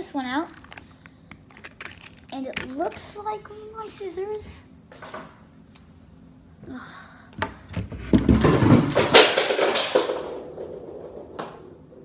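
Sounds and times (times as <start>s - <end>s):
objects clattering: 7.8s - 12.0s.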